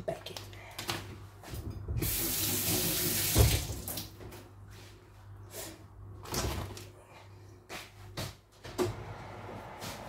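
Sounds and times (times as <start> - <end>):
tap running into sink: 2.0 - 4.1.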